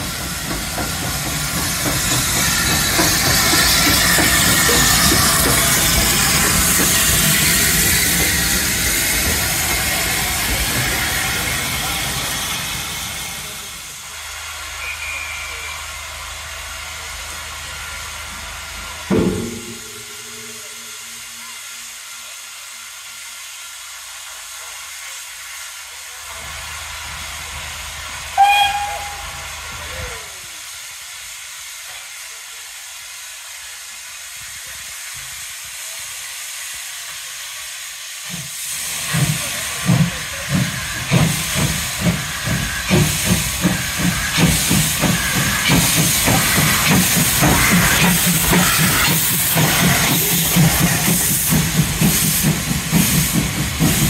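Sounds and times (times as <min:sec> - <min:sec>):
steam hissing: 0:00.0 - 0:54.0
steam whistle blast: 0:14.7 - 0:15.9, 0:28.3 - 0:30.2
drain cocks hissing: 0:37.4 - 0:54.0.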